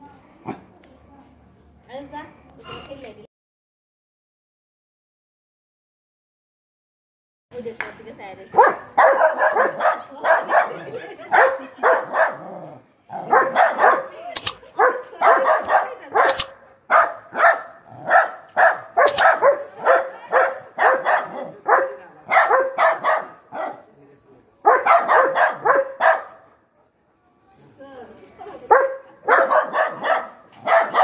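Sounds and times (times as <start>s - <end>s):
dog yapping: 13.2s - 21.4s, 29.3s - 31.0s.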